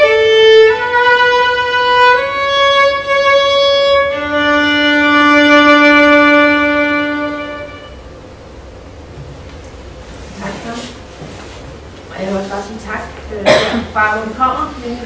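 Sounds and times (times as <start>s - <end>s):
solo violin long notes: 0.0s - 8.1s.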